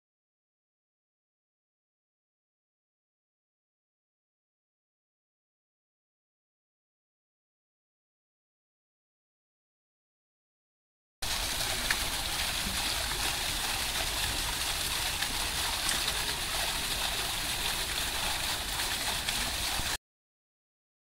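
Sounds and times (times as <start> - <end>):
fountain water splashing into basin: 11.2 - 20.0.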